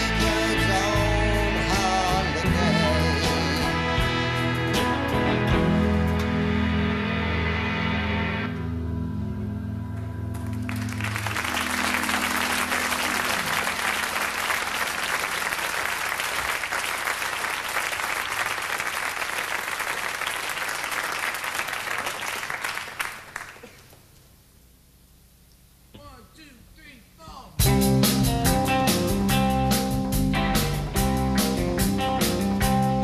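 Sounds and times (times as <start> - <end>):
audience applause: 10.3 - 24.0.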